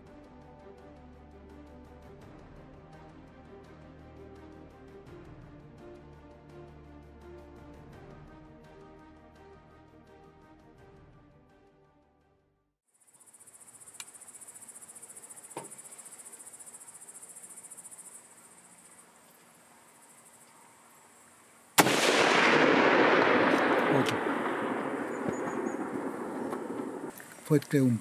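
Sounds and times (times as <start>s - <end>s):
insects chirping: 12.8s - 28.0s
rifle shot with echo: 21.8s - 27.1s.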